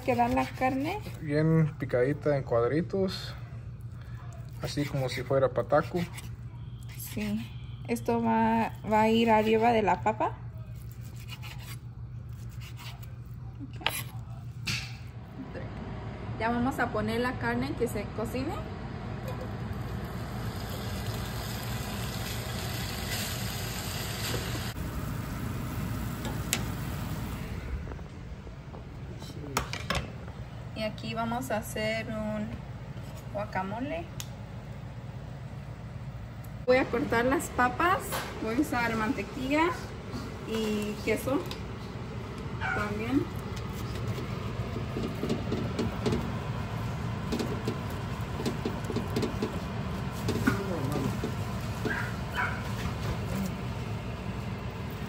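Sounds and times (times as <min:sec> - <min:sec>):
steady low hum: 0:00.0 - 0:55.0
beef sizzling in a pan: 0:20.1 - 0:24.8.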